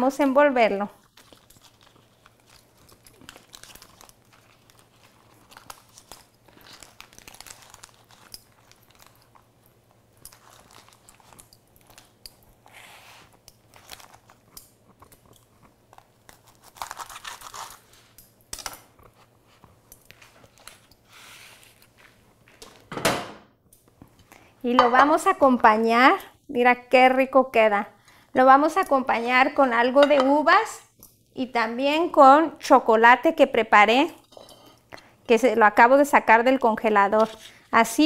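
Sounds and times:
leaves crinkling and rustling: 1.1 - 9.2.

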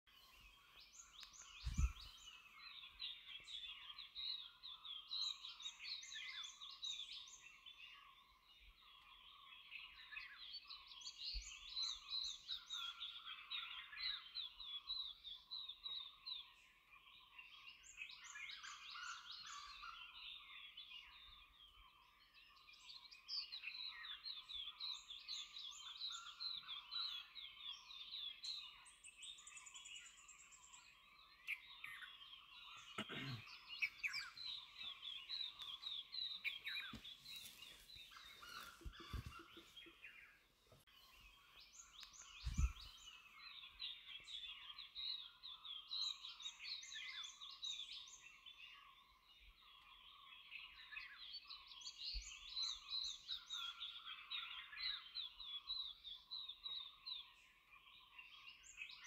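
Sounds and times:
high chirping animal calls: 32.7 - 40.1.

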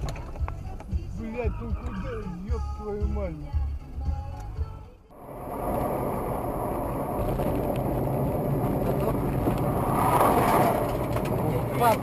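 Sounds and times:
car engine: 4.3 - 12.0
tyre and wind noise: 5.1 - 12.0.

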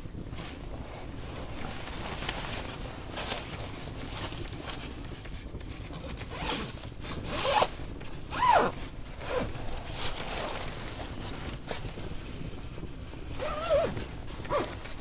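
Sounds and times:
zipper pulled: 6.0 - 7.7, 8.3 - 10.6, 13.3 - 15.0.

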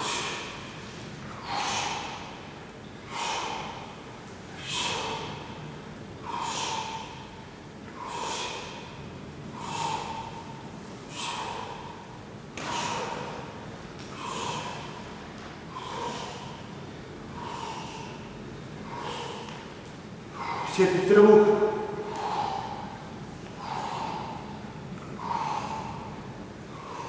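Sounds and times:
forceful breaths out: 0.0 - 2.5, 3.1 - 4.0, 4.6 - 5.6, 6.2 - 15.1, 21.8 - 27.0.

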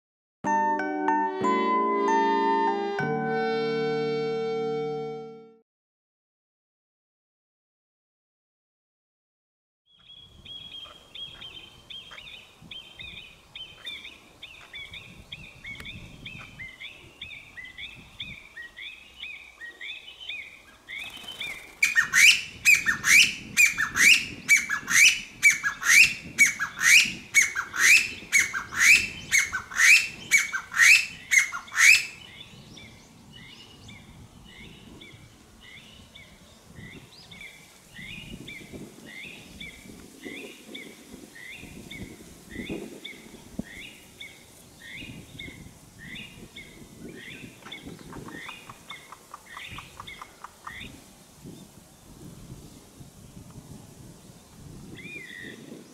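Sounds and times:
bird calling loud rising notes: 1.3 - 5.5, 21.3 - 32.2.

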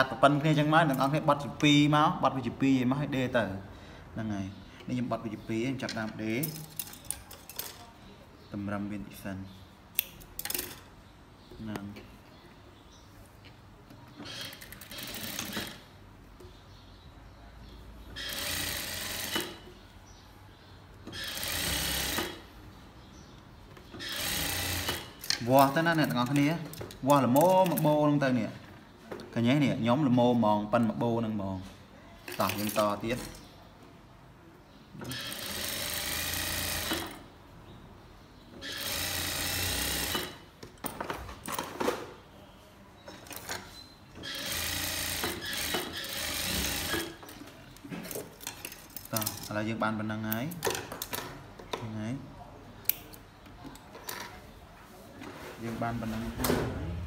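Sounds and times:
sewing machine stitching: 14.3 - 15.8, 18.2 - 19.6, 21.1 - 22.4, 24.0 - 25.2, 35.0 - 37.2, 38.6 - 40.4, 44.2 - 47.2.

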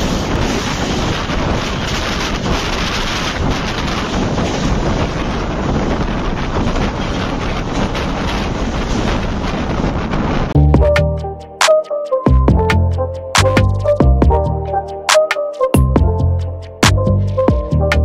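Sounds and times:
wind buffeting microphone: 0.0 - 11.2
passing train rumbling: 0.0 - 18.0.

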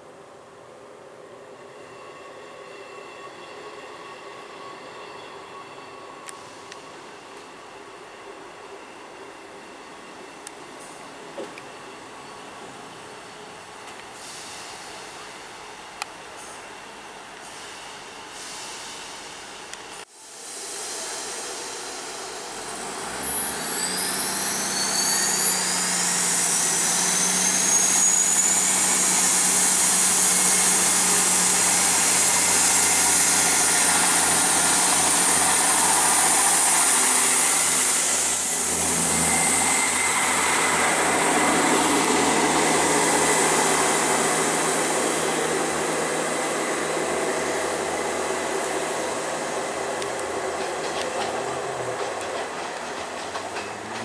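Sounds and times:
train diesel engines humming: 0.1 - 54.0
high rising whine: 29.8 - 51.8.

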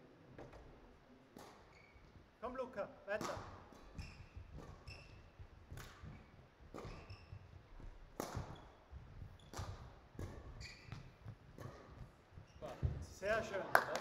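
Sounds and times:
court shoes squeaking: 0.4 - 2.3, 3.2 - 13.4
racket hitting shuttlecock: 1.3 - 1.7, 3.1 - 13.0.

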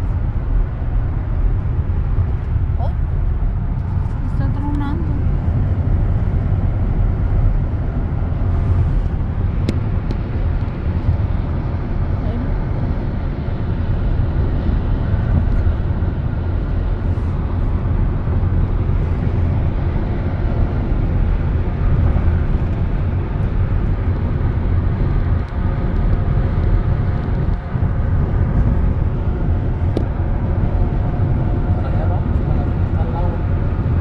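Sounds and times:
vehicle interior road rumble: 0.0 - 34.0.

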